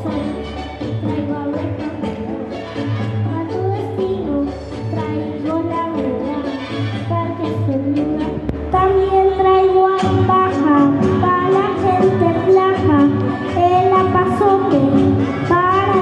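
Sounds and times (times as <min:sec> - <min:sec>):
boy singing into a microphone: 0:03.3 - 0:16.0.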